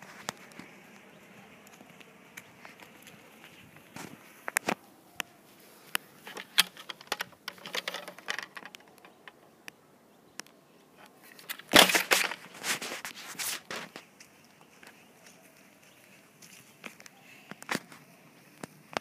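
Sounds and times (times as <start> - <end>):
footsteps in dry grass and leaves: 0.0 - 8.2, 11.2 - 19.0
plastic water gun clicks: 6.3 - 9.4.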